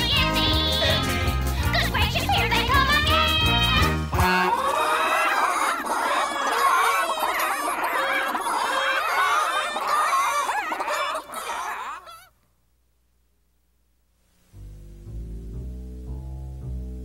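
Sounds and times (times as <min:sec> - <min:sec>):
chickens clucking and squawking: 0:04.4 - 0:12.4.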